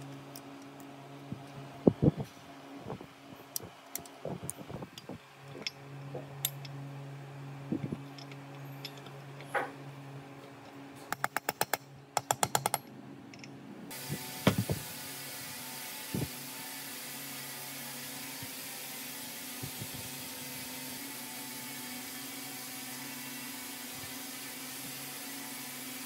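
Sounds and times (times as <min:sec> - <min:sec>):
steady low hum: 0:00.0 - 0:17.1.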